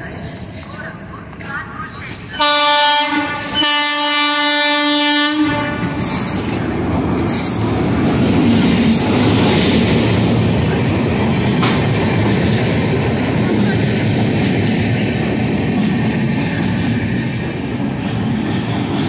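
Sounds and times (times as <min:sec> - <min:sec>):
train rolling past: 0:00.0 - 0:19.0
locomotive horn blasts: 0:02.4 - 0:06.1.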